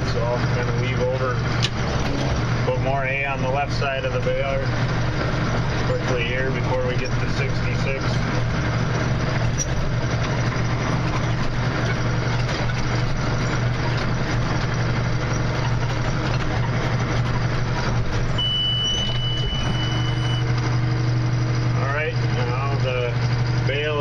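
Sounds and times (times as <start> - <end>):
tractor and baler drone: 0.0 - 24.0
high-pitched alarm tone: 18.4 - 20.5.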